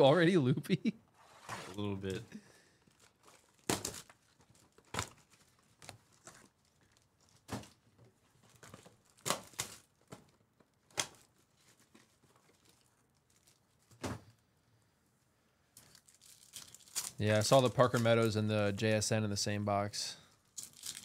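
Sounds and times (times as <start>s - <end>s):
plastic wrap crinkling: 2.8s - 14.0s, 15.8s - 18.4s, 20.5s - 21.0s.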